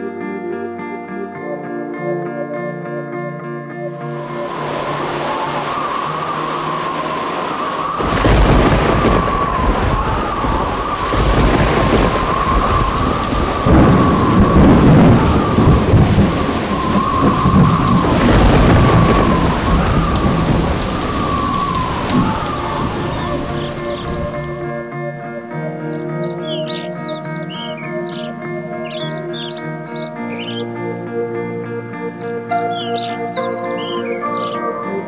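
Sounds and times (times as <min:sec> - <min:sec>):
heavy rain: 0:04.0 - 0:24.8, 0:26.0 - 0:30.7, 0:32.1 - 0:34.6
rolling thunder: 0:04.0 - 0:24.8
wavering high whistle: 0:04.0 - 0:24.8.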